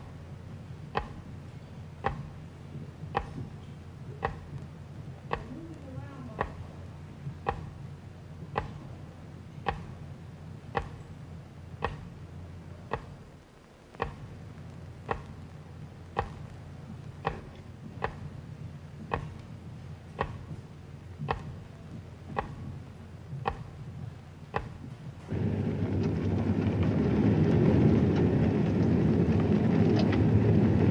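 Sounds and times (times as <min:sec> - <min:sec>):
low steady hum: 0:00.0 - 0:30.9
clock ticking: 0:00.9 - 0:01.3, 0:02.0 - 0:02.4, 0:03.0 - 0:03.5, 0:04.2 - 0:04.6, 0:05.2 - 0:06.7, 0:07.3 - 0:07.8, 0:08.5 - 0:08.9, 0:09.6 - 0:10.0, 0:10.7 - 0:11.0, 0:11.7 - 0:12.1, 0:12.9 - 0:13.2, 0:13.9 - 0:14.4, 0:15.0 - 0:15.4, 0:16.1 - 0:19.5, 0:20.2 - 0:20.6, 0:21.2 - 0:23.8, 0:24.5 - 0:24.9.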